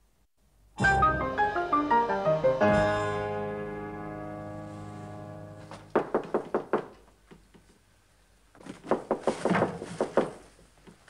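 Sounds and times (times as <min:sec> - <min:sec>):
sustained music chord: 0:00.8 - 0:05.8
rapid knocking on a door: 0:06.0 - 0:07.0, 0:08.8 - 0:10.5.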